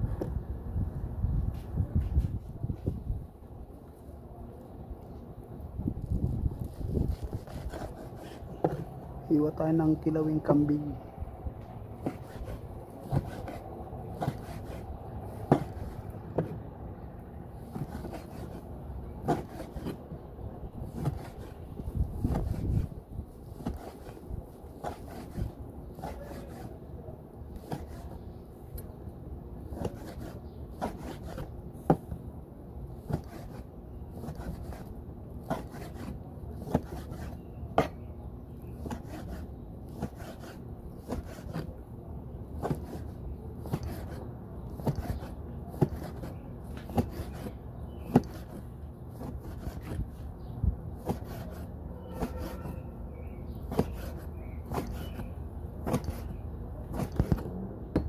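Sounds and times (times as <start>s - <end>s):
knife scraping board: 6.7s - 9.0s, 12.0s - 16.6s, 17.6s - 20.0s, 20.9s - 21.6s, 22.2s - 22.9s, 23.5s - 24.2s, 24.8s - 26.8s, 27.6s - 28.2s, 29.7s - 32.0s, 33.0s - 38.0s, 38.8s - 41.7s, 42.6s - 44.2s, 44.8s - 48.6s, 49.2s - 50.2s, 51.0s - 52.9s, 53.6s - 57.5s
knife chopping on cutting board: 15.4s - 16.6s, 35.5s - 38.0s, 48.1s - 48.6s, 51.0s - 52.8s, 53.7s - 58.0s.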